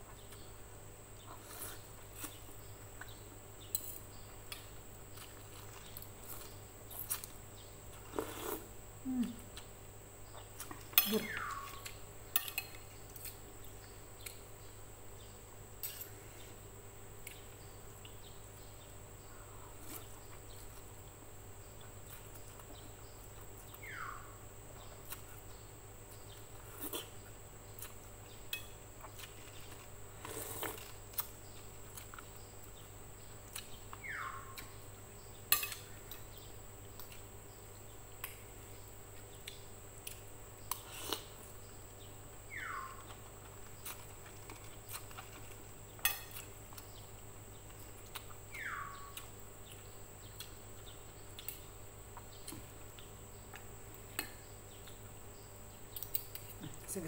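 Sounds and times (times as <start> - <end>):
slurping noodles: 8.1 - 8.7, 30.2 - 30.9.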